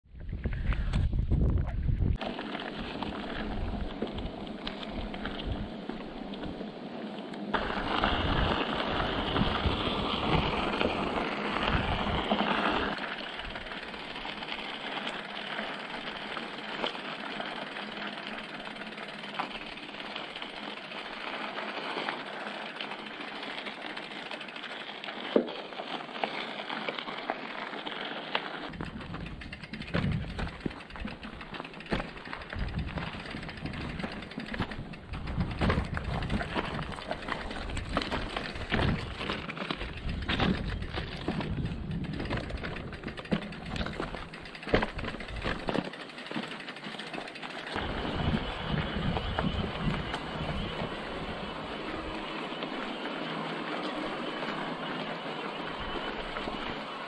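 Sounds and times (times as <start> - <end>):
wind buffeting microphone: 0.1 - 2.2, 7.6 - 12.5, 28.7 - 45.7, 47.8 - 52.3
bike tyres crunching on gravel: 2.1 - 57.0.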